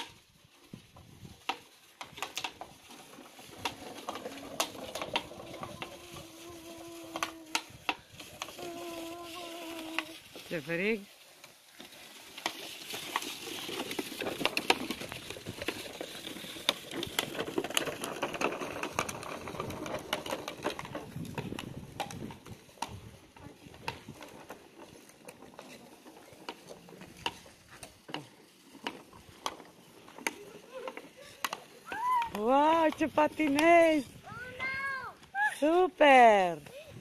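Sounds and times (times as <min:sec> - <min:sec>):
electric kart motors humming: 0:01.3 - 0:10.5, 0:11.3 - 0:34.5.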